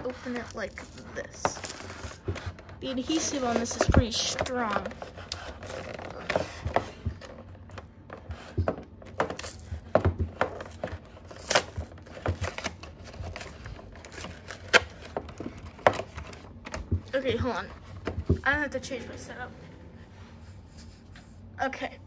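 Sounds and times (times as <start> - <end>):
cardboard tearing: 10.4 - 15.3.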